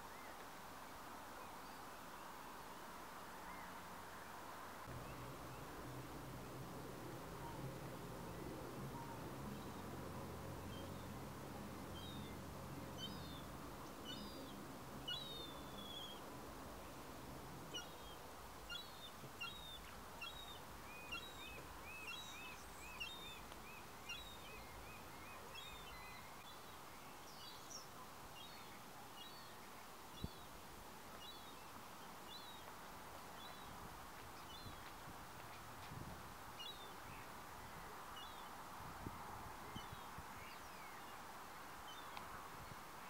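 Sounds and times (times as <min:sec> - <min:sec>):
faint harbour ambience: 0:04.8 - 0:26.4
small birds chirping: 0:04.8 - 0:35.9, 0:36.5 - 0:38.7, 0:39.5 - 0:43.0
low steady hum: 0:04.9 - 0:27.1.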